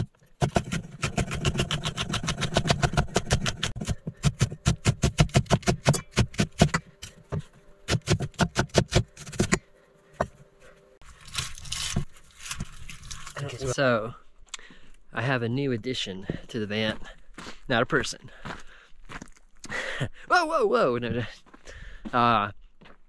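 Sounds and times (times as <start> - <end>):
knife chopping on wooden board: 0.0 - 9.6.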